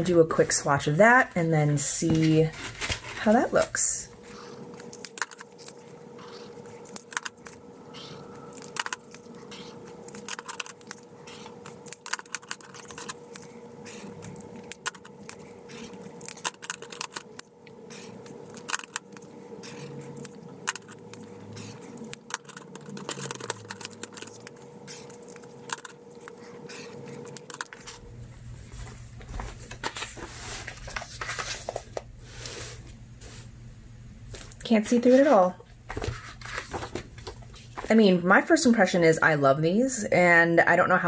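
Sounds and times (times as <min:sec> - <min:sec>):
planner handling rumble: 0:02.0 - 0:28.0, 0:28.7 - 0:32.1, 0:35.9 - 0:38.0.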